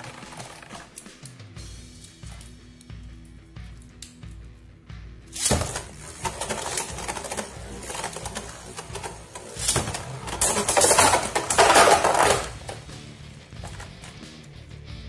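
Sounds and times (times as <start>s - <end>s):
spinning tops landing in plastic stadium: 0.0s - 4.5s, 5.3s - 14.6s
spinning tops rattling: 5.3s - 14.5s.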